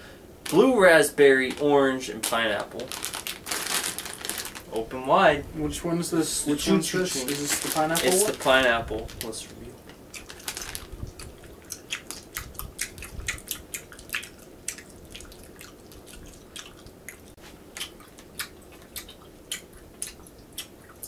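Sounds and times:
wet chewing and sucking: 10.1 - 21.0
sticky mouth smacks and clicks: 11.0 - 21.0.

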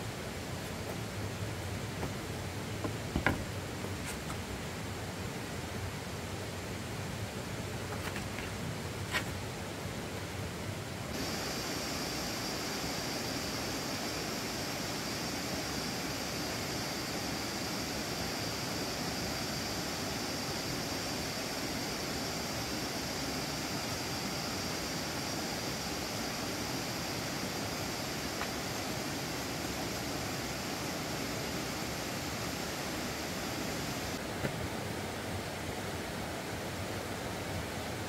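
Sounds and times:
high insect drone: 11.1 - 34.2
steady rushing noise: 11.1 - 35.9.

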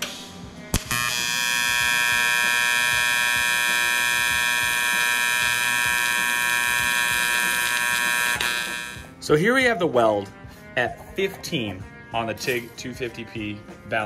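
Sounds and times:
welding arc strike crack: 0.7 - 6.2
welding arc buzzing: 0.7 - 9.1.

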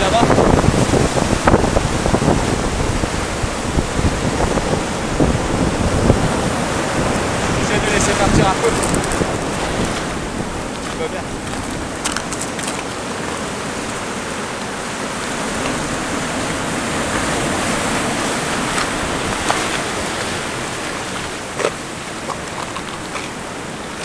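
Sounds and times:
surf washing over rocks: 0.0 - 24.0.

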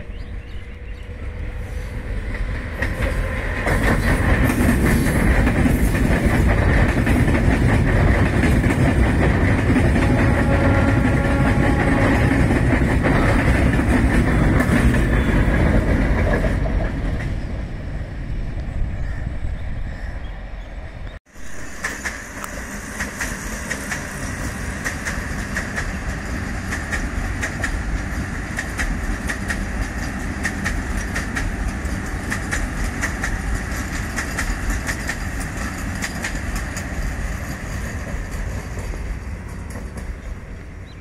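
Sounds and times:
electric train passing: 0.0 - 41.0
wheels clattering on rails: 2.2 - 17.5, 21.6 - 40.5.

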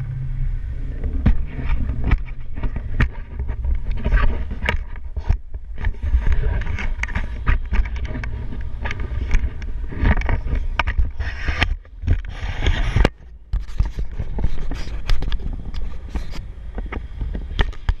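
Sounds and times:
knocks and scrapes: 0.0 - 18.0
wind buffeting microphone: 0.0 - 18.0.

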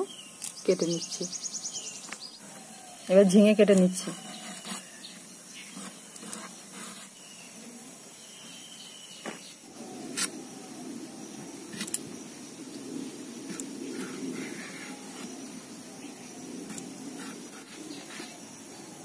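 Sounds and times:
faint steady hiss: 0.0 - 19.0.

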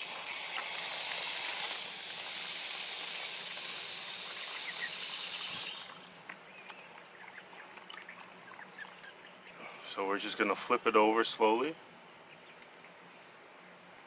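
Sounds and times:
hose nozzle spraying water: 0.0 - 6.1.

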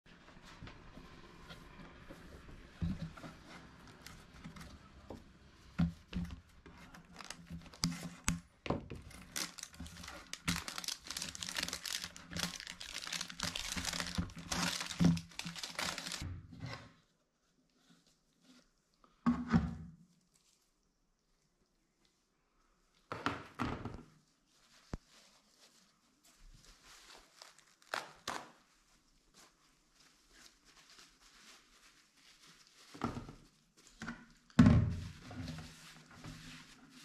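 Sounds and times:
plastic label peeling and tearing: 6.7 - 8.4, 9.0 - 16.2, 27.4 - 28.6.

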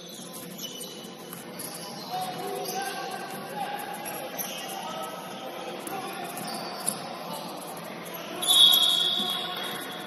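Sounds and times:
chatter of players and spectators: 0.0 - 10.0
referee's whistle: 8.3 - 9.9.

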